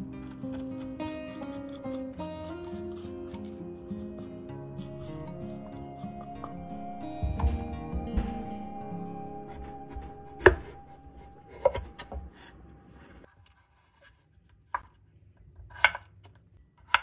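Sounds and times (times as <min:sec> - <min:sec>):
faint music: 0:00.0 - 0:13.3.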